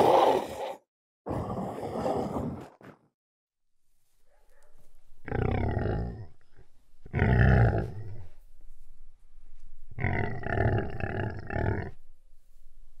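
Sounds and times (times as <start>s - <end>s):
big cat roaring: 5.3s - 6.4s, 7.1s - 8.2s, 10.0s - 12.0s.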